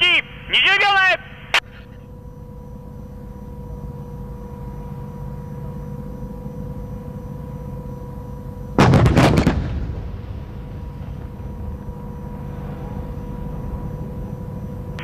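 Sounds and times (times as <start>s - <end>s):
faint steady hum: 0.0s - 15.0s
low steady rumble: 2.0s - 15.0s
artillery firing: 8.8s - 13.6s.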